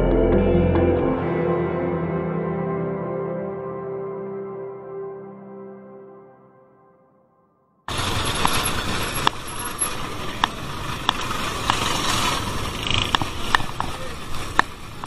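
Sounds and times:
traffic rush: 0:07.9 - 0:15.0
sharp bicycle clicks: 0:08.1 - 0:15.0.

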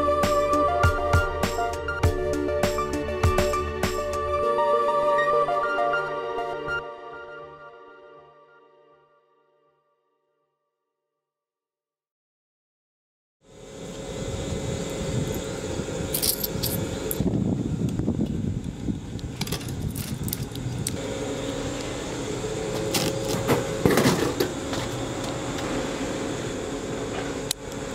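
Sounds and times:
vending machine humming: 0:13.5 - 0:27.9
coins clinking into machine: 0:16.1 - 0:17.2.

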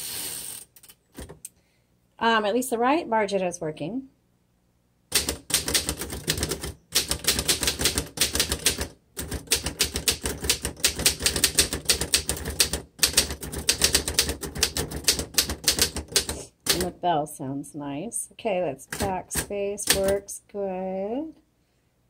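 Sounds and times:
manual typewriter typing: 0:05.1 - 0:17.0, 0:18.9 - 0:20.2.

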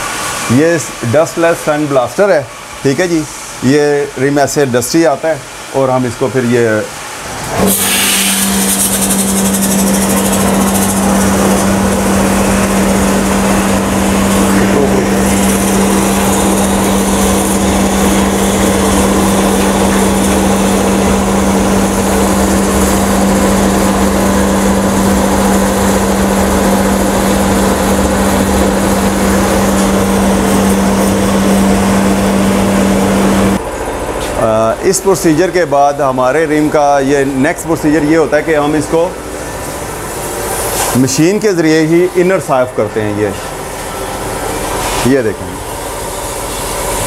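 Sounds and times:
steady machine hum: 0:00.0 - 0:47.0
sandblasting jet hissing: 0:07.6 - 0:33.6.

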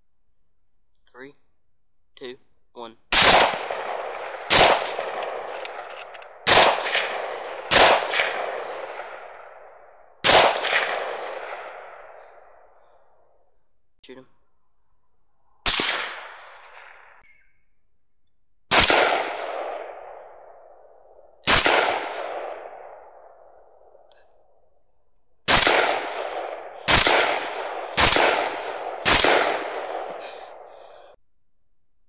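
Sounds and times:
rifle shots with echo: 0:03.1 - 0:12.9, 0:15.6 - 0:17.2, 0:18.7 - 0:24.1, 0:25.4 - 0:31.2.

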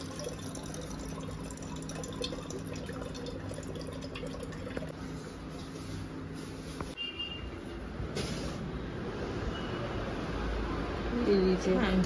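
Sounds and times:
water running into bottle: 0:00.0 - 0:05.0.

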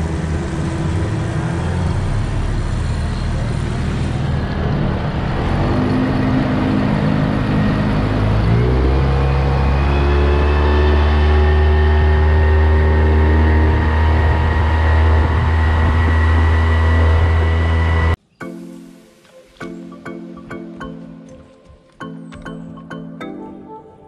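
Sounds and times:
rushing wind: 0:00.0 - 0:18.2.

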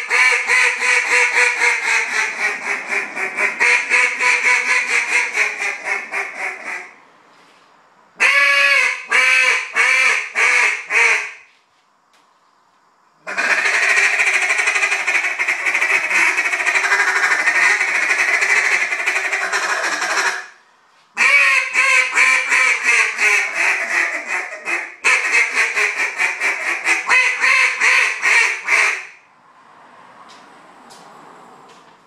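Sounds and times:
duck call quacks: 0:00.0 - 0:07.0, 0:08.2 - 0:11.5, 0:13.2 - 0:20.6, 0:21.2 - 0:29.2.

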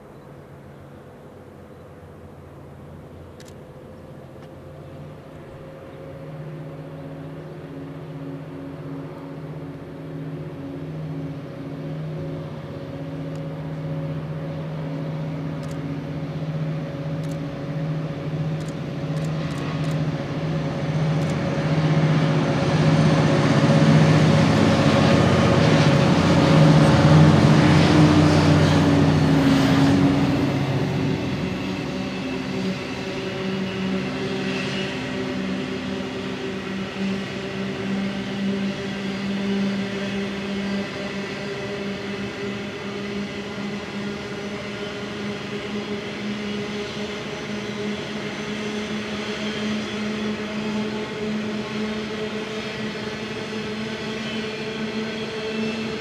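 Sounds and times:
diesel locomotive engines droning: 0:00.0 - 0:56.0.

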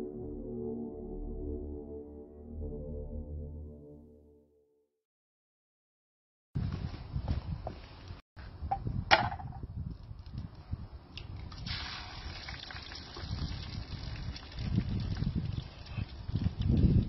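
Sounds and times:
wind on the microphone: 0:06.6 - 0:17.0.

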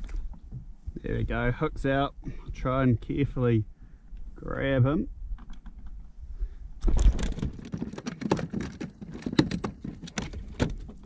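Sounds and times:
scraping and knocking on plastic: 0:06.9 - 0:11.0.

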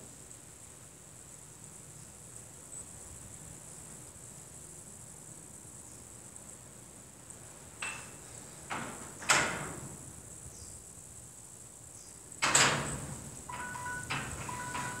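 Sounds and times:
faint high-pitched hiss: 0:00.0 - 0:15.0
gym weights clanking: 0:12.7 - 0:15.0.

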